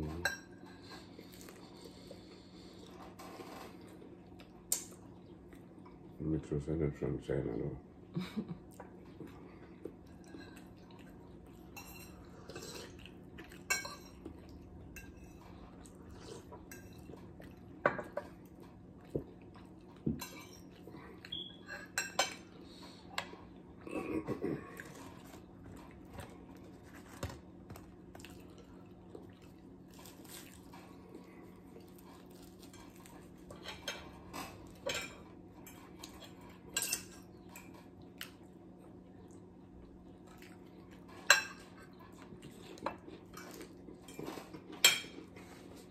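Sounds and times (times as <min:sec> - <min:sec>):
forks clinking on plates: 0:32.6 - 0:37.8.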